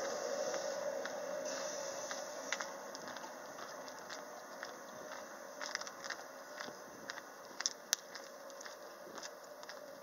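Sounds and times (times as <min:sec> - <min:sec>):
footsteps clicking and crackling: 0:00.0 - 0:10.0.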